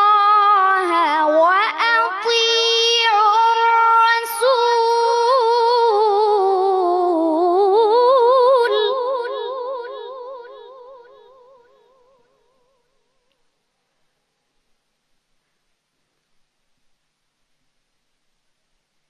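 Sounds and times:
boy reciting melodically: 0.0 - 8.0.

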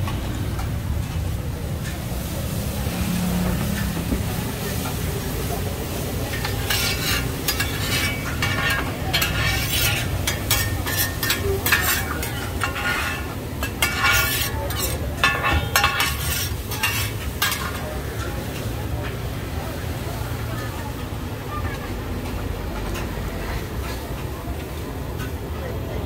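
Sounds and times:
oil sizzling: 2.2 - 18.1
metal spatula scraping pan: 6.2 - 17.8.

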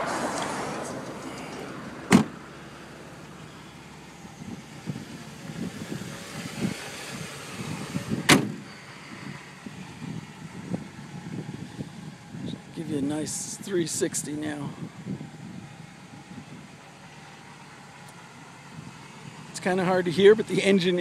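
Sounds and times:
car engine idling: 0.0 - 8.7, 9.4 - 21.0
car door slamming: 1.4 - 2.4, 8.1 - 8.6.

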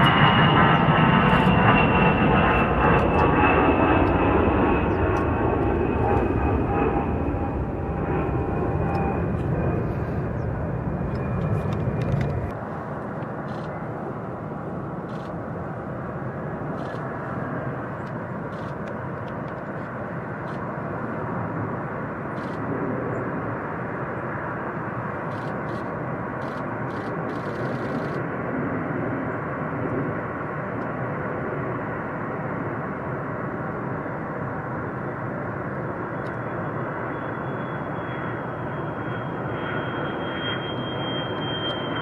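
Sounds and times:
distant jet engine rushing: 0.0 - 42.0.

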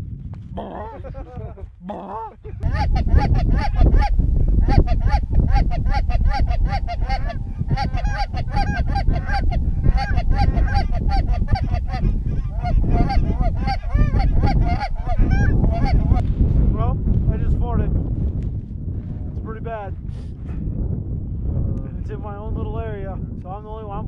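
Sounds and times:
wind rumble on microphone: 0.0 - 24.0
goose honking: 2.6 - 16.2.

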